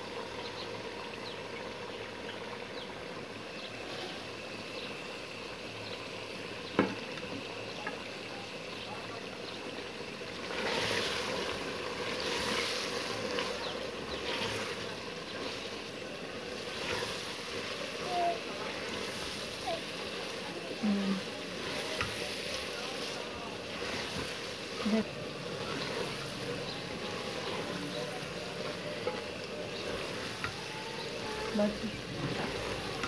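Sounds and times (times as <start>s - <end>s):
food sizzling in metal pot: 0.0s - 33.0s
wooden spoon stirring and scraping: 10.3s - 33.0s.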